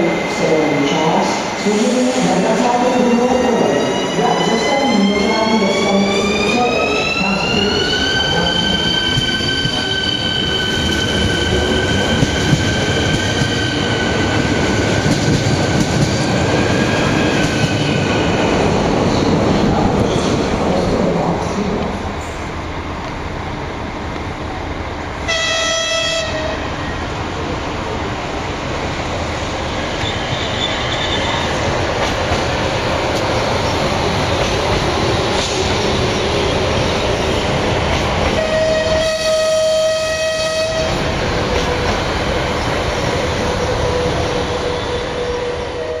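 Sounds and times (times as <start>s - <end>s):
train wheels rumbling on rails: 0.0s - 46.0s
train horn blast: 25.3s - 26.6s, 38.4s - 41.0s.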